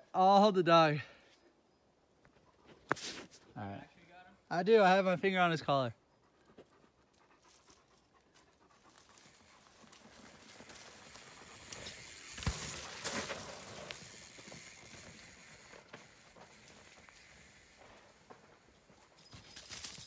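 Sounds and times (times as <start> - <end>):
dog panting: 6.0 - 11.6
bike tyres on dirt trail: 8.3 - 20.0.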